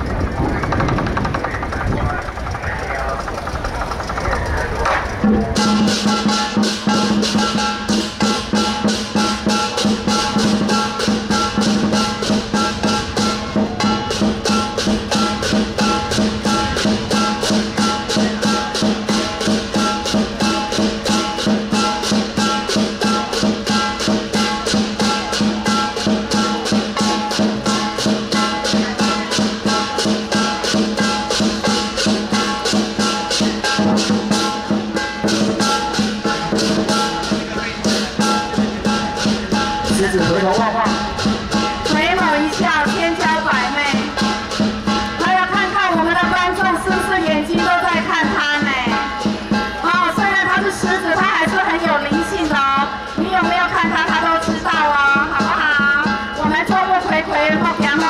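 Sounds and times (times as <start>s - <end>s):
cymbals crashing: 0.0s - 58.0s
large drum beating: 0.0s - 58.0s
gong: 3.5s - 45.7s.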